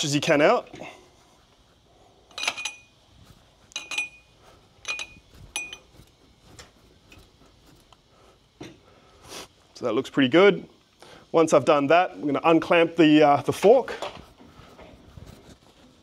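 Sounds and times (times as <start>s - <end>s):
metallic clinks from motorcycle fork: 2.3s - 3.0s, 3.7s - 6.0s.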